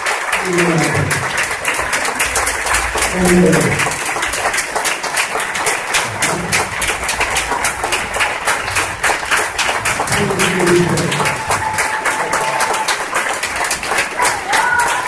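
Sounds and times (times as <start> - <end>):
audience applauding: 0.0 - 15.0
voices calling out: 0.3 - 4.5, 6.0 - 13.1.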